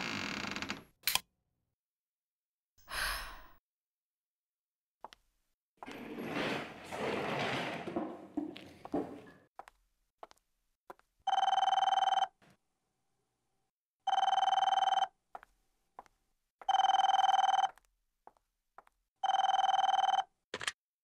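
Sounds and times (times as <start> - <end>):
telephone ringing: 11.3 - 12.4, 14.1 - 15.1, 16.6 - 17.7, 19.2 - 20.3.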